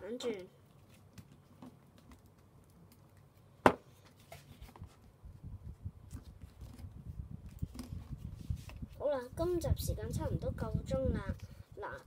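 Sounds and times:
paper rustling and folding: 0:04.0 - 0:05.2, 0:06.1 - 0:09.0.

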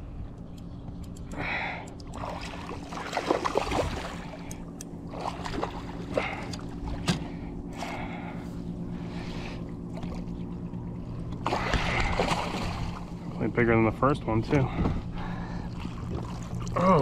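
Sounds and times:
steady low hum: 0:00.0 - 0:17.0
fish splashing in water: 0:02.2 - 0:04.5, 0:11.4 - 0:13.0.

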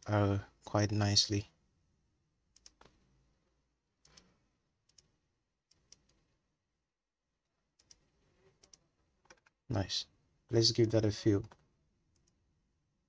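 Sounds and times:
computer mouse clicks: 0:02.6 - 0:03.0, 0:04.0 - 0:04.3, 0:04.9 - 0:05.1, 0:07.8 - 0:09.6, 0:11.4 - 0:12.4.

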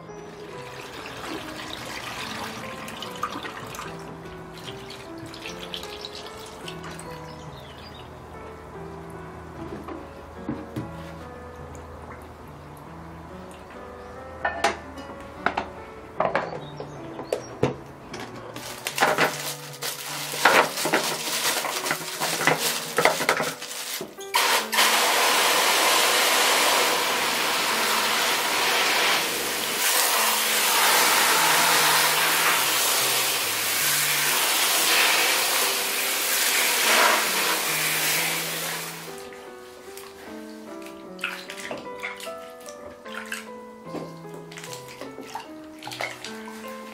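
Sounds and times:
water spraying into plastic basin: 0:00.4 - 0:07.3, 0:18.6 - 0:39.3, 0:40.8 - 0:43.6, 0:44.5 - 0:46.9.

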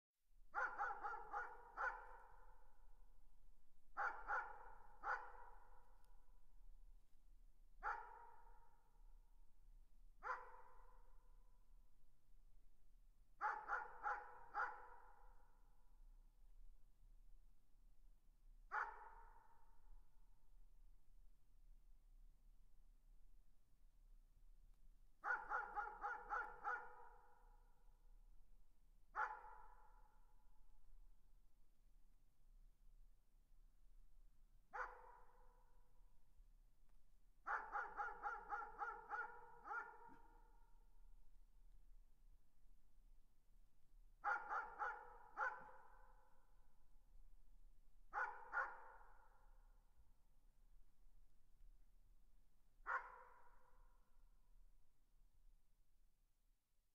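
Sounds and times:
distant dog barking with echo: 0:00.5 - 0:03.0, 0:03.9 - 0:06.2, 0:07.8 - 0:09.0, 0:10.2 - 0:11.3, 0:13.4 - 0:15.8, 0:18.7 - 0:19.8, 0:25.2 - 0:28.0, 0:29.1 - 0:30.3, 0:34.6 - 0:35.8, 0:37.4 - 0:41.0, 0:44.2 - 0:46.6, 0:48.1 - 0:50.0, 0:52.8 - 0:54.2.

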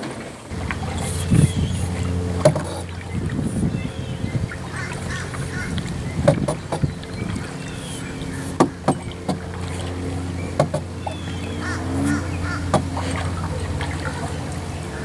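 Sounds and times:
paddle splashing in water: 0:00.0 - 0:15.0
steady low hum: 0:00.1 - 0:15.0
paddle knocking on canoe: 0:00.6 - 0:14.3.

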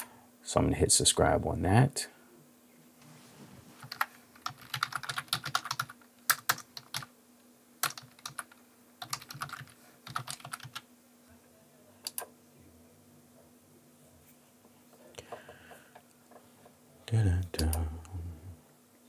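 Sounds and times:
typing on computer keyboard: 0:03.8 - 0:07.1, 0:07.8 - 0:10.8.

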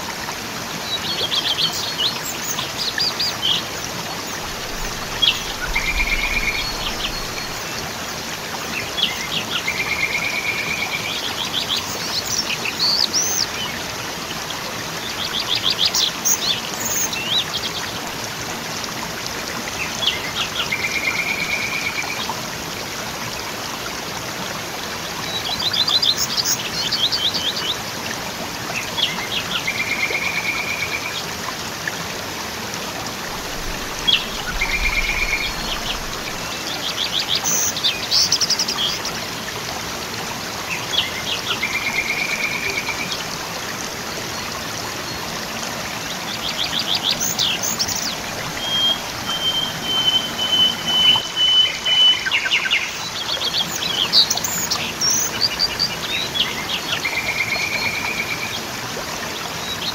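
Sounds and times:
waterfall rushing: 0:00.0 - 0:59.9
songbirds singing: 0:00.7 - 0:18.3, 0:25.0 - 0:28.1, 0:33.1 - 0:39.6, 0:40.6 - 0:59.9.

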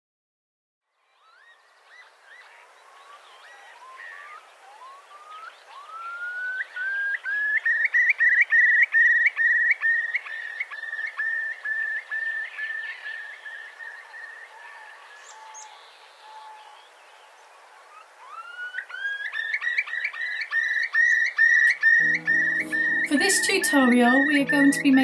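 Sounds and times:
curlew bubbling song: 0:01.2 - 0:25.0.

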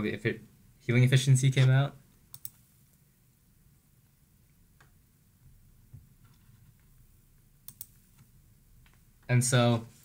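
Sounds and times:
faint clicks: 0:02.3 - 0:02.6, 0:07.6 - 0:08.0.

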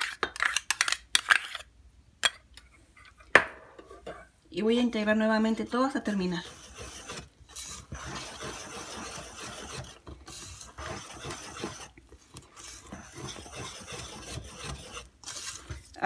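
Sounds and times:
whisk scraping metal bowl: 0:05.5 - 0:16.0.

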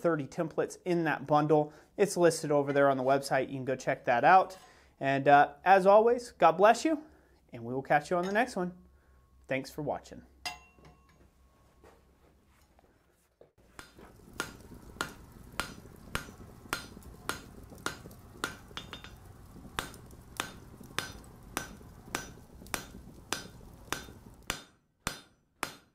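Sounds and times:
hammer striking anvil: 0:10.4 - 0:11.3, 0:13.8 - 0:19.2, 0:19.8 - 0:25.9.

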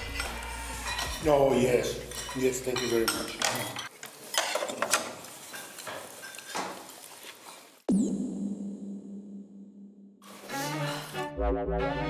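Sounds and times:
cutlery clinking on plates: 0:00.0 - 0:07.1.

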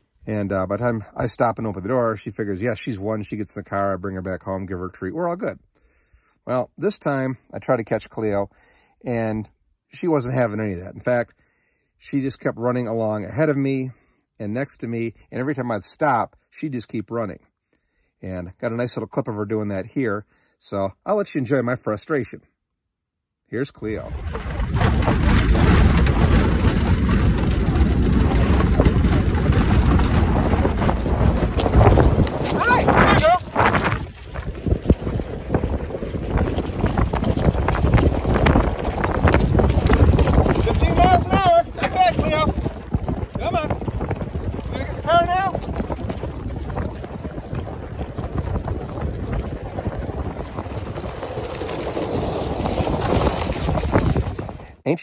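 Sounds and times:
gravel crackling: 0:00.0 - 0:11.4, 0:23.5 - 0:55.0
knocks and rattles: 0:23.8 - 0:54.8
vehicle engine and tyres rumbling: 0:24.1 - 0:54.7.

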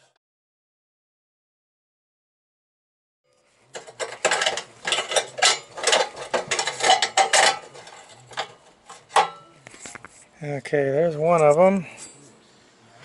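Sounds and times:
metallic clicks and scrapes: 0:03.4 - 0:10.2
loose metal parts rattling: 0:03.7 - 0:09.5.

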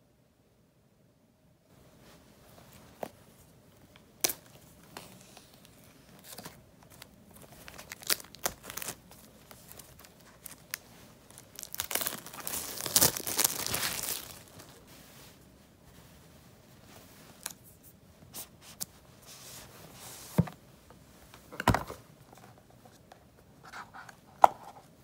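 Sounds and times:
wrapping tearing and crinkling: 0:04.0 - 0:14.8.

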